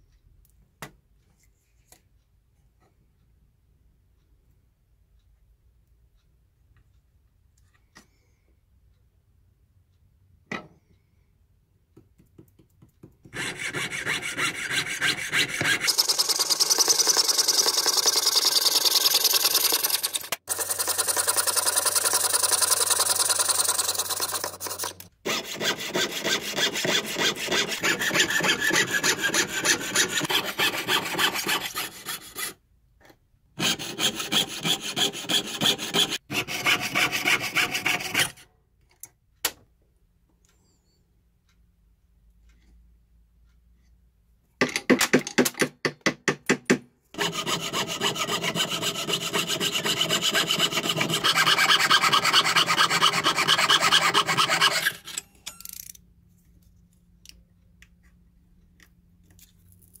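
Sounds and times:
piercing saw cutting metal sheet: 13.4 - 32.6, 33.6 - 38.4, 47.2 - 55.2.

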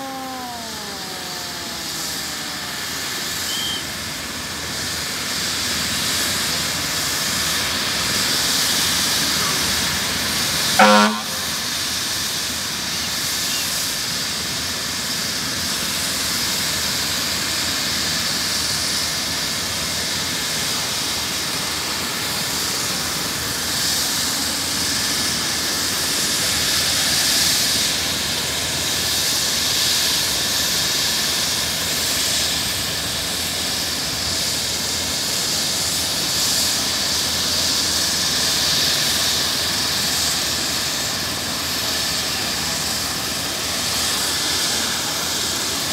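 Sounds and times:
helicopter turbine whine: 0.0 - 45.9.

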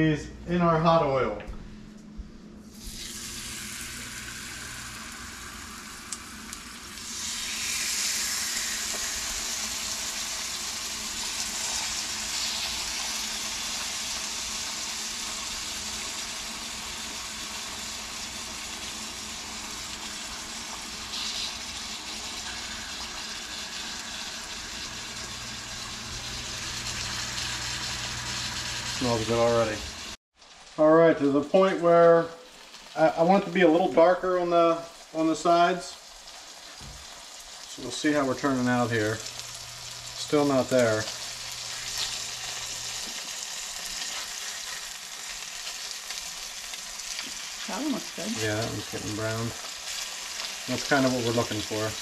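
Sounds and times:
fish sizzling in hot oil: 2.7 - 52.0.

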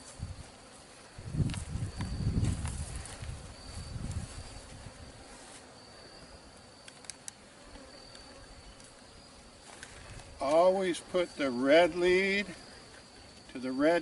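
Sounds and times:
honeybees buzzing: 0.0 - 14.0
small clicks: 6.8 - 7.4.

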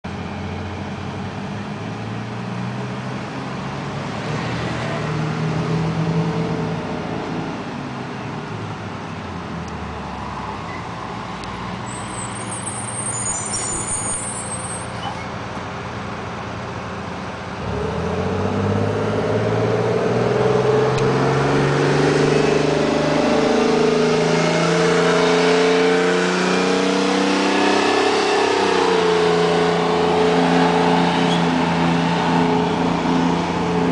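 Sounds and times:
bus diesel engine: 0.0 - 33.9
high squeal: 11.8 - 15.4.

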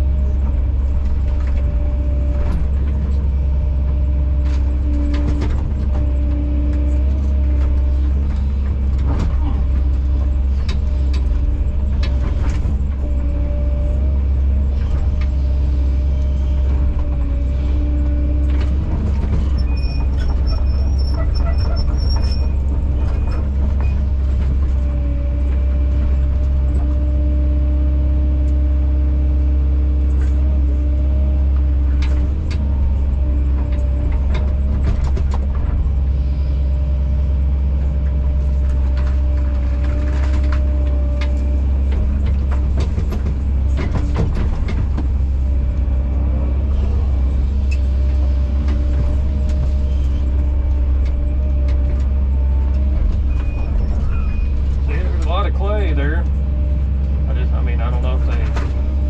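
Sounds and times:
excavator engine and hydraulics: 0.0 - 59.0.

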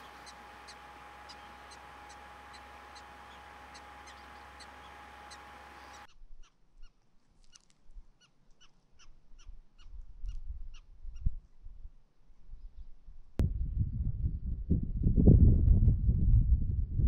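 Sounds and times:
prairie dog barking calls: 0.0 - 6.1
low rumble: 13.4 - 17.0.

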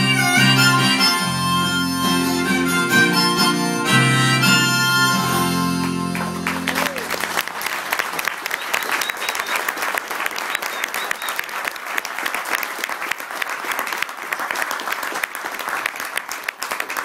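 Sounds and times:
audience applauding: 5.3 - 17.0.

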